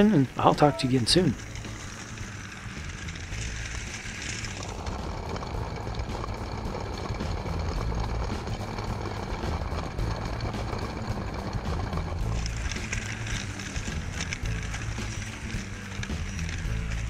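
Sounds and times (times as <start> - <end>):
toy train motor and wheels rumbling: 0.0 - 17.0.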